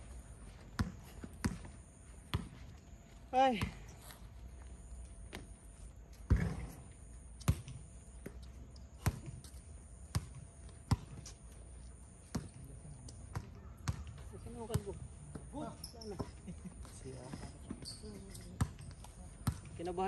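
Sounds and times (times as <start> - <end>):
basketball bouncing on hard court: 0.7 - 1.7, 6.3 - 6.7, 7.4 - 8.4, 9.0 - 9.5, 10.1 - 11.3, 13.3 - 15.5, 18.6 - 20.0.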